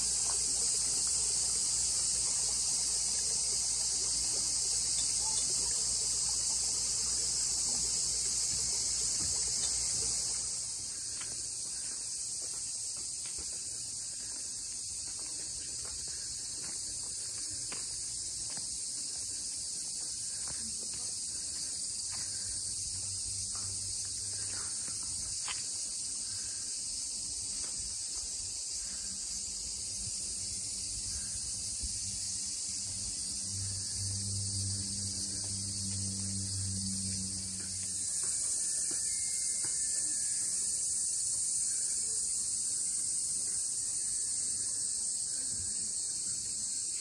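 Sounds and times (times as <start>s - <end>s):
high-pitched insect chorus: 0.0s - 47.0s
low hum: 32.8s - 38.5s.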